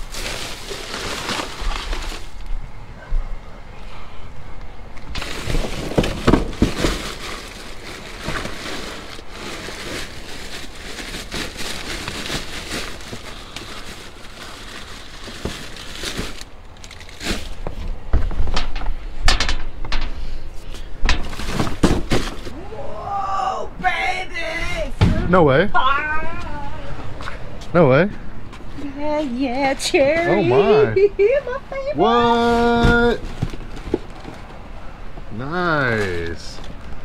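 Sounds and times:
plastic bags rustling: 0:00.0 - 0:02.5, 0:05.1 - 0:18.0, 0:21.2 - 0:22.6, 0:32.3 - 0:34.8.

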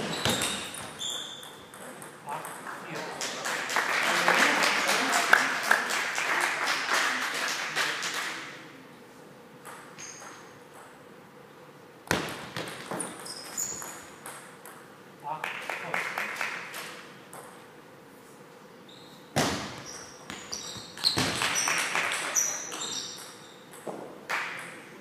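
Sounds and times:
shoe squeaks on floor: 0:00.0 - 0:01.7, 0:10.0 - 0:10.5, 0:12.9 - 0:14.2, 0:18.8 - 0:23.7
spectators clapping and cheering: 0:02.7 - 0:08.5, 0:15.4 - 0:16.9, 0:21.4 - 0:22.4.

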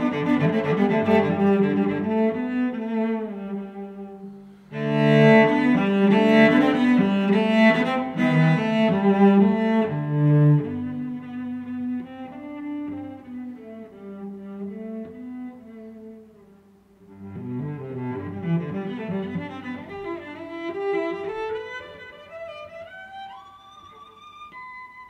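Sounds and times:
bowed strings playing low melody: 0:00.0 - 0:16.2.

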